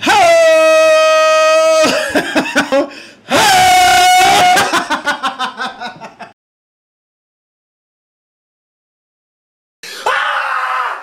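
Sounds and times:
man laughing: 1.8 - 3.0, 4.2 - 6.4.

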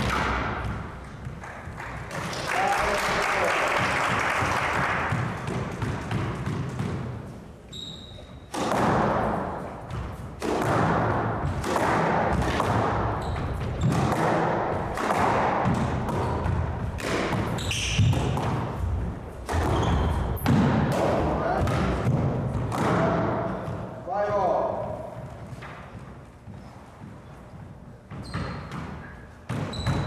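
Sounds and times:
squash ball striking walls: 0.0 - 3.0, 3.8 - 30.0
applause: 1.4 - 5.2
shoe squeaks: 7.6 - 8.5, 13.1 - 14.1, 17.5 - 18.4, 19.5 - 20.5, 26.6 - 30.0.

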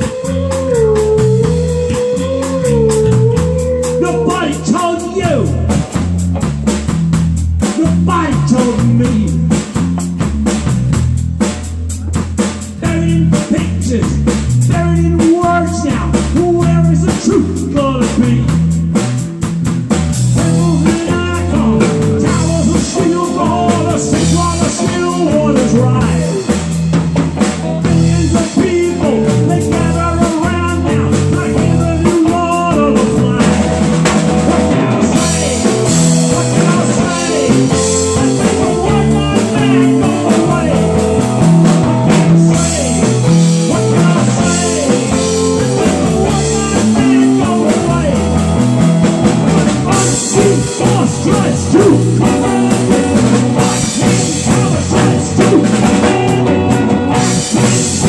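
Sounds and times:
man singing: 0.0 - 6.0, 7.6 - 9.8, 12.1 - 18.9, 20.3 - 27.0, 27.8 - 58.0
live rock band playing: 0.0 - 58.0.

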